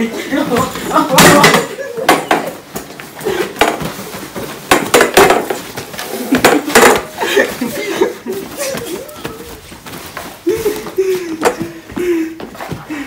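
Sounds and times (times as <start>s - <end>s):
people wrestling on tiled floor: 0.0s - 13.0s
folding chair hitting floor: 0.5s - 2.6s, 3.6s - 5.7s, 6.3s - 7.2s.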